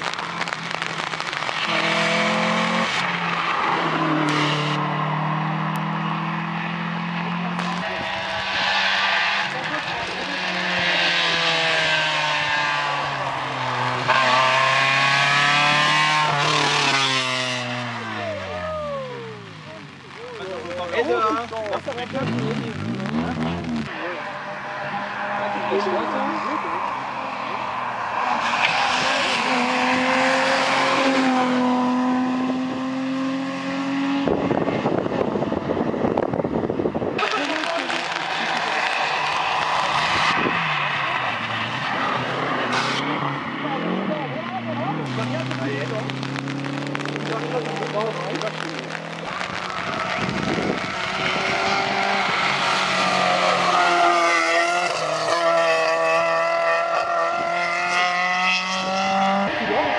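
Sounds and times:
dense crackling noise: 0:00.0 - 0:04.4, 0:07.5 - 0:08.5, 0:18.0 - 0:24.0, 0:37.2 - 0:43.0, 0:45.0 - 0:52.8
rally car engine pulling hard: 0:00.0 - 0:59.9.

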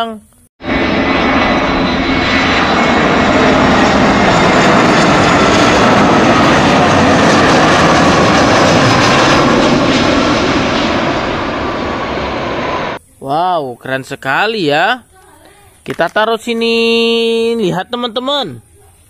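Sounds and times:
jet engines roaring: 0:00.6 - 0:13.0
faint high whine: 0:09.9 - 0:19.0.

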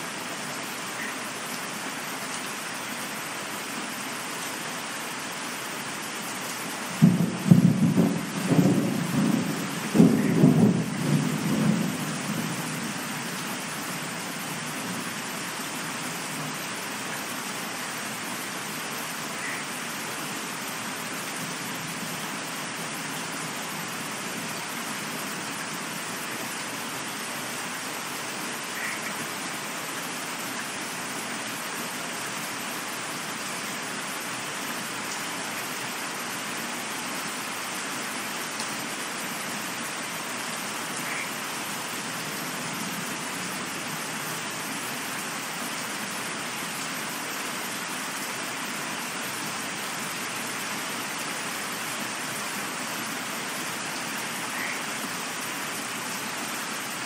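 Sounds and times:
steady rain falling: 0:00.0 - 0:57.0
thunder rumbling: 0:07.0 - 0:13.0.

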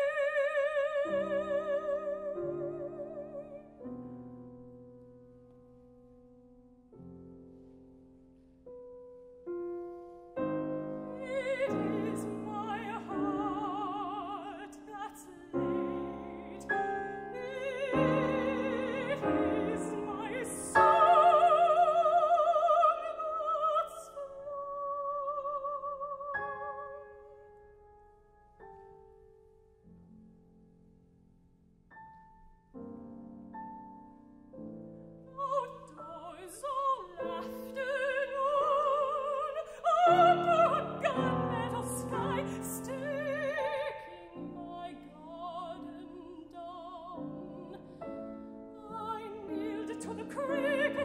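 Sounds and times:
soprano singing: 0:00.0 - 0:04.4, 0:10.2 - 0:27.6, 0:33.7 - 0:51.0
grand piano: 0:00.0 - 0:51.0.

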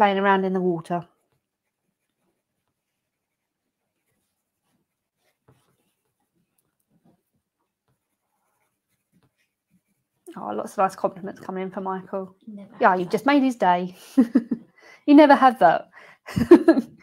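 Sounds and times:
pencil scratching on paper: 0:00.0 - 0:13.5.

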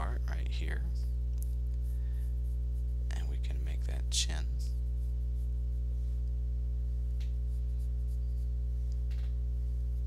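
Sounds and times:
low electrical hum: 0:00.0 - 0:10.0
pencil scratching on paper: 0:01.4 - 0:03.3, 0:04.7 - 0:05.9, 0:07.3 - 0:08.7.

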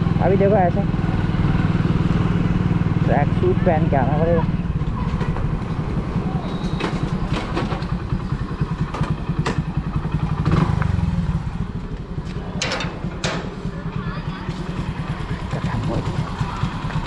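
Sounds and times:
motorcycle engine running: 0:00.0 - 0:17.0
sharp clicks and knocks: 0:12.5 - 0:13.5.

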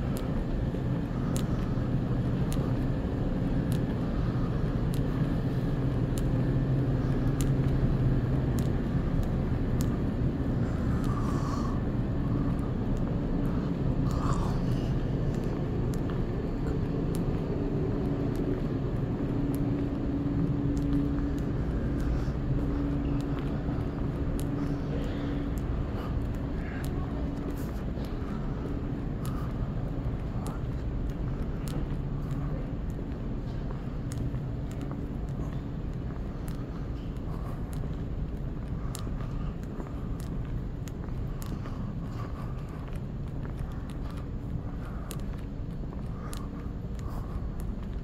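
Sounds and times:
footsteps on tiled floor: 0:00.0 - 0:48.0
low hum: 0:00.0 - 0:48.0.

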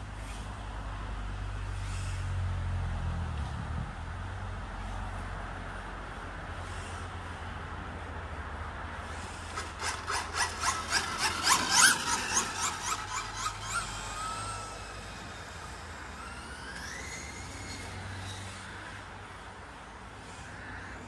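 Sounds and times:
rc car high chirps: 0:09.5 - 0:19.0
thin whine rising in pitch: 0:09.8 - 0:19.5.

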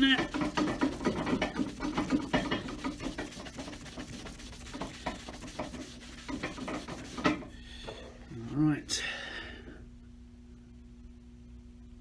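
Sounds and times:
hand buffing leather shoe: 0:00.0 - 0:07.5.

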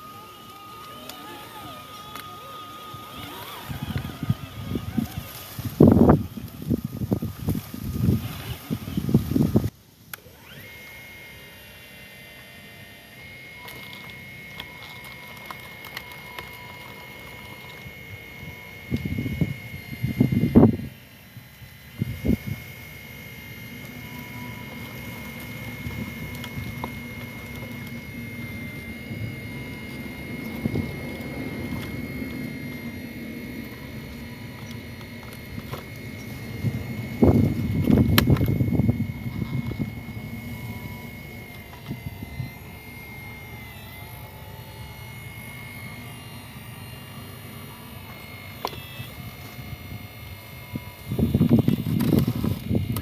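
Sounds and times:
toy excavator motors whirring: 0:00.0 - 0:53.0.

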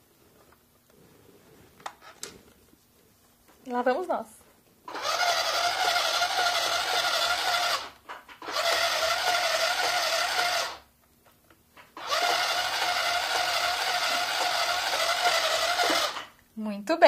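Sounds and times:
sewing machine motor humming: 0:04.9 - 0:10.8, 0:12.0 - 0:16.3.

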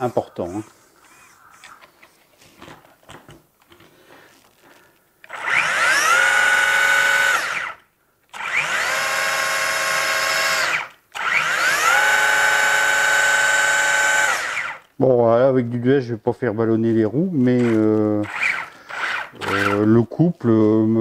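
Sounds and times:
electric motor whine: 0:00.0 - 0:01.9, 0:05.3 - 0:07.8, 0:08.4 - 0:14.9, 0:17.6 - 0:19.8.

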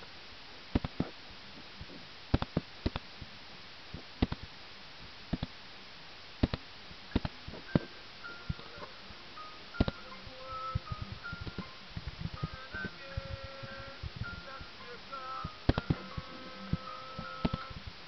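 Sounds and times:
steady hiss: 0:00.0 - 0:18.0
computer mouse clicks: 0:02.3 - 0:03.0, 0:04.2 - 0:04.4, 0:06.4 - 0:07.9.

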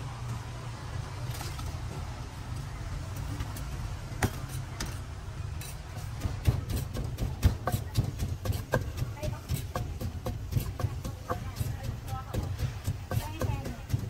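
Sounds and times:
wooden pestle pounding in mortar: 0:06.1 - 0:14.0.

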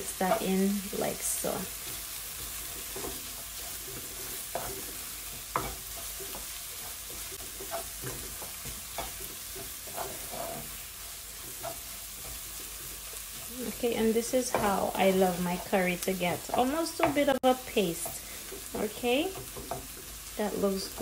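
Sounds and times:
onions sizzling in oil: 0:00.0 - 0:21.0
wooden spoon scraping pan: 0:01.5 - 0:20.2.

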